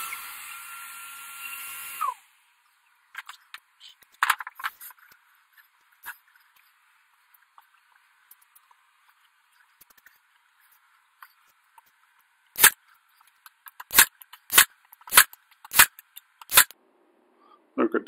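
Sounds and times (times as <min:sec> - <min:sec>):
nail gun firing into wood: 0:12.6 - 0:12.8, 0:13.9 - 0:16.7.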